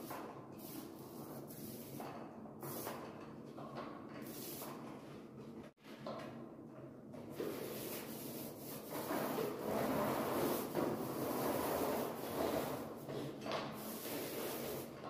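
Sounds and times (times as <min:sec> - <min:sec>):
paint roller rubbing on wall: 0:07.3 - 0:15.0.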